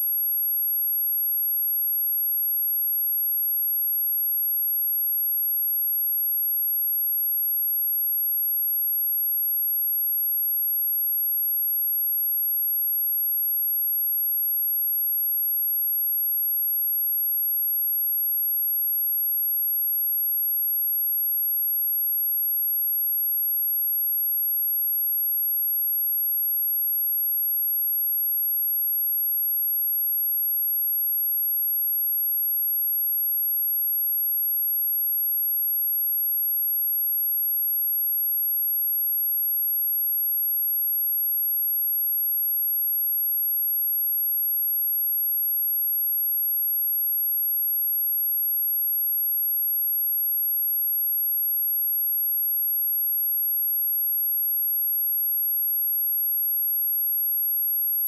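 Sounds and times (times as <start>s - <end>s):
high-pitched sine test tone: 0.0s - 0.5s, 26.2s - 58.0s.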